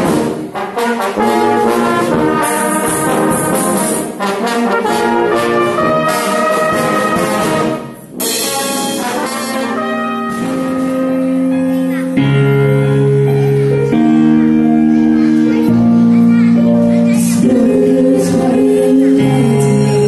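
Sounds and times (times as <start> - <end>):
brass band playing: 0.0 - 15.2.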